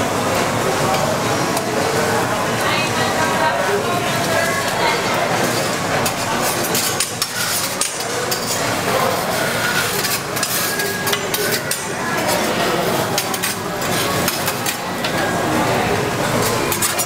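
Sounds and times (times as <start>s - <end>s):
metal spatulas scraping griddle: 4.2s - 15.7s, 16.3s - 17.0s.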